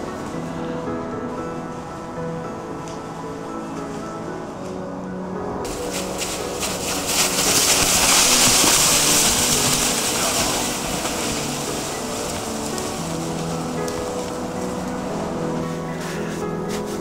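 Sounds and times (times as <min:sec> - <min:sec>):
carcass dragged over snow and leaves: 0:05.6 - 0:17.0.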